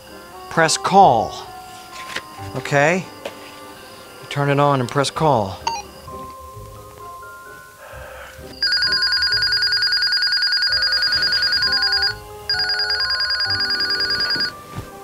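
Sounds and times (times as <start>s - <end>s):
trilling two-tone radio ring: 8.6s - 14.6s.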